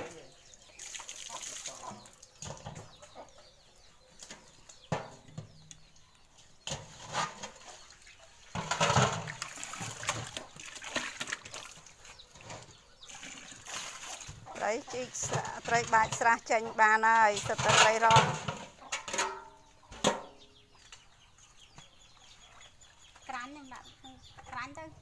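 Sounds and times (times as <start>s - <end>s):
fish splashing in metal pot: 8.5s - 12.1s.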